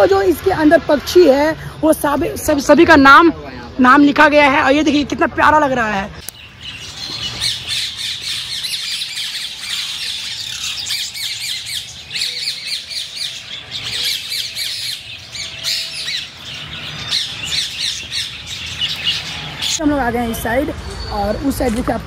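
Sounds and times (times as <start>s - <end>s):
small birds chirping and squawking: 6.1s - 22.0s.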